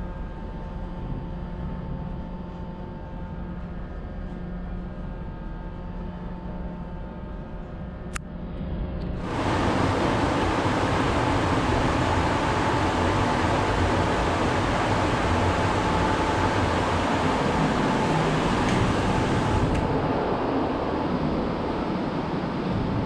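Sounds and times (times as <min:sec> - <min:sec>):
ventilation machinery hum: 0:00.0 - 0:23.0
rushing air and fan noise: 0:08.4 - 0:23.0
click: 0:19.7 - 0:19.9.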